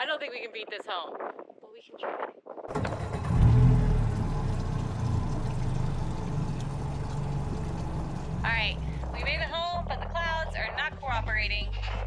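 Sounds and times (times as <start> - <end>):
outboard motor running: 2.7 - 9.8.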